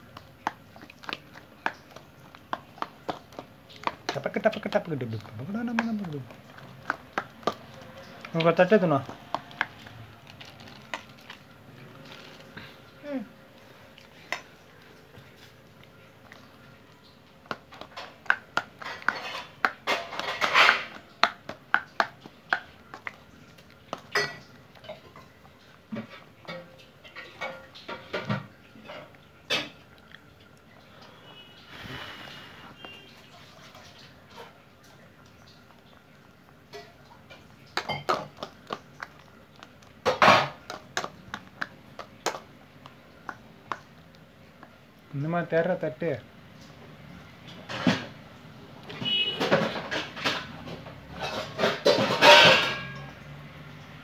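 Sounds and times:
spoon clinking and scraping bowl: 0:17.5 - 0:25.4, 0:36.7 - 0:39.3, 0:51.1 - 0:53.2.

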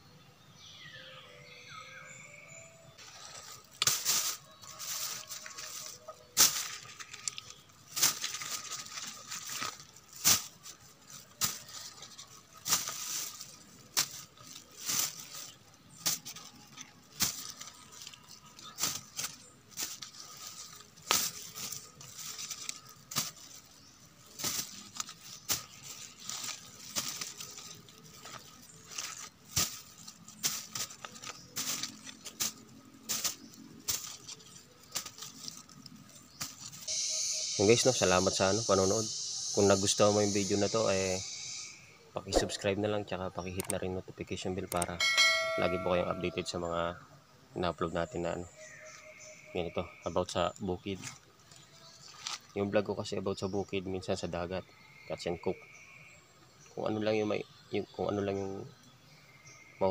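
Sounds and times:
plastic bag crinkling: 0:03.0 - 0:37.0
fruits dropping into bag: 0:03.5 - 0:36.9.

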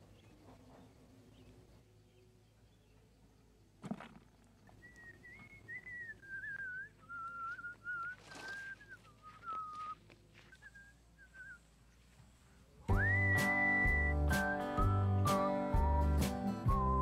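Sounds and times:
person whistling a tune: 0:04.8 - 0:11.6, 0:12.9 - 0:17.0
brief rustle: 0:07.5 - 0:10.2.

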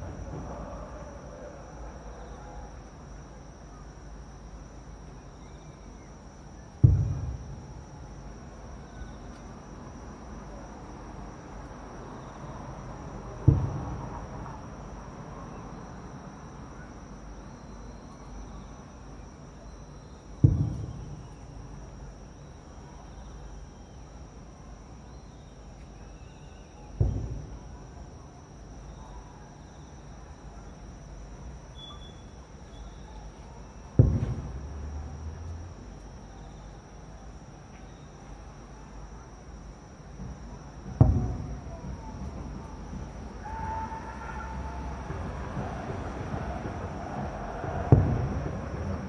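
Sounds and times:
firework shells booming: 0:06.8 - 0:07.9, 0:13.4 - 0:14.5, 0:20.4 - 0:21.4, 0:27.0 - 0:27.7, 0:34.0 - 0:35.1, 0:40.2 - 0:43.2, 0:45.0 - 0:49.0.

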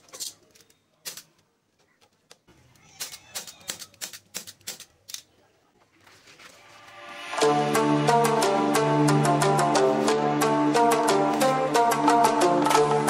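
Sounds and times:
metal hand tools clicking: 0:03.0 - 0:05.3
music: 0:06.6 - 0:13.0.

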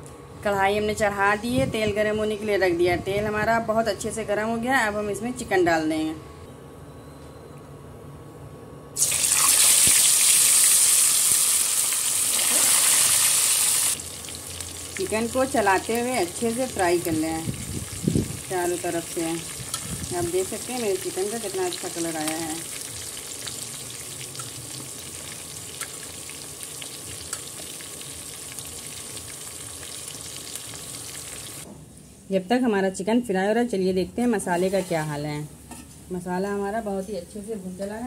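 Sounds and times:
chicken sizzling in hot oil: 0:09.0 - 0:31.6.

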